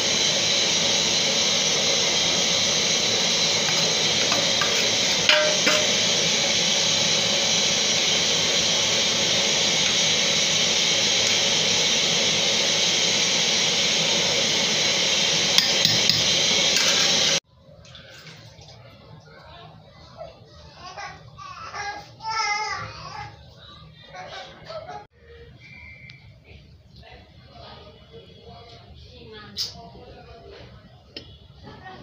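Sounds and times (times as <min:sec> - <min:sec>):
metal spoon scraping a metal pan: 0:03.7 - 0:06.3.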